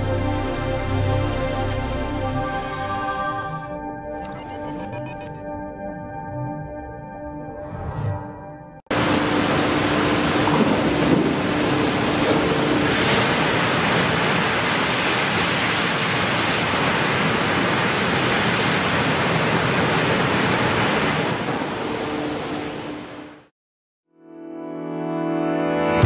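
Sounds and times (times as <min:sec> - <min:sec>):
low machinery hum: 0:08.9 - 0:13.8
water jets rushing hiss: 0:08.9 - 0:21.5.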